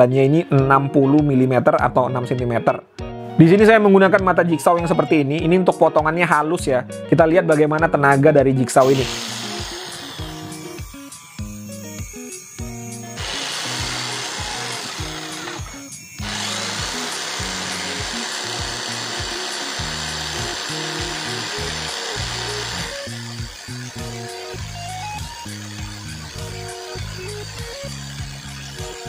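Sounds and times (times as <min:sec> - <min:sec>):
background music: 0:00.0 - 0:29.0
electric jigsaw cutting wood: 0:08.8 - 0:29.0.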